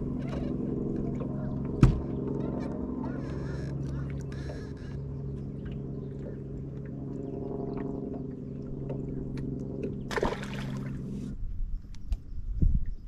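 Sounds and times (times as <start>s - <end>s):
boat motor humming: 0.0s - 11.5s
water splashing: 10.1s - 11.2s.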